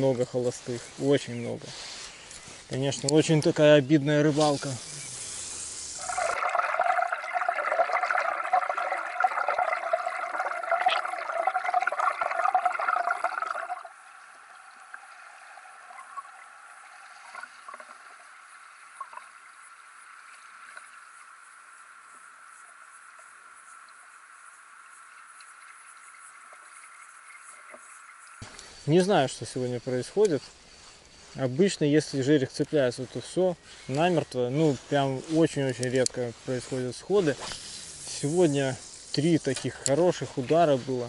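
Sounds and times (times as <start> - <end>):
faint steady hum: 0.0 - 41.0
muffled underwater water rushing: 6.0 - 28.4.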